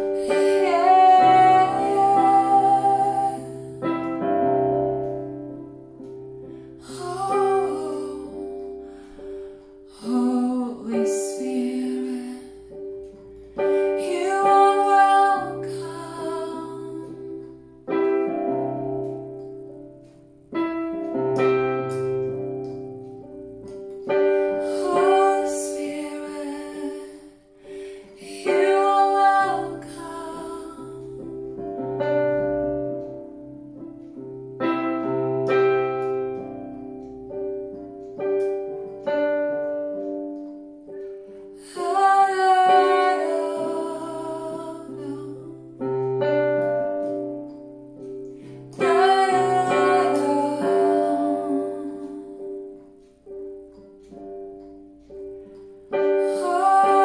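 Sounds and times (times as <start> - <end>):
woman singing: 0.0 - 4.7, 6.8 - 12.9, 13.6 - 18.6, 24.1 - 31.4, 41.6 - 47.4, 48.5 - 52.8, 56.0 - 57.0
piano chords: 0.0 - 57.0.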